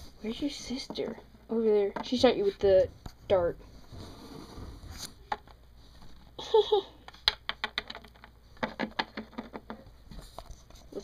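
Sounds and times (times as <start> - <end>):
plastic toys clicking on wooden table: 7.1 - 9.8.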